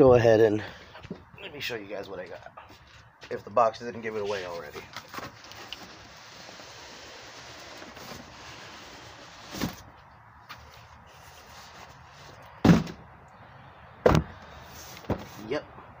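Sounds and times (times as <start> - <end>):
cardboard box being lifted: 7.6 - 9.9
loud sharp thud: 12.6 - 13.0, 14.0 - 14.3.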